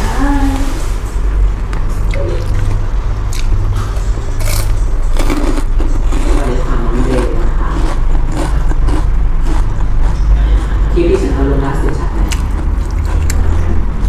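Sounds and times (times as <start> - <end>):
steady low hum: 0.0 - 14.0
chewing noodles: 2.1 - 11.0, 11.9 - 14.0.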